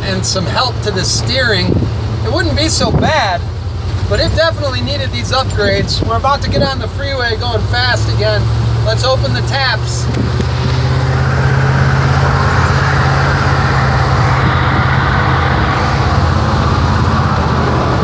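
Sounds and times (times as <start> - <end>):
road noise: 0.0 - 18.0
truck engine drone: 0.0 - 18.0
wind noise: 1.6 - 2.1, 10.0 - 18.0.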